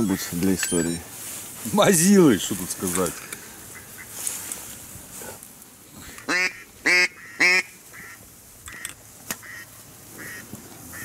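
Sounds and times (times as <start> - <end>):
duck quacks: 6.2 - 8.2, 9.4 - 11.0.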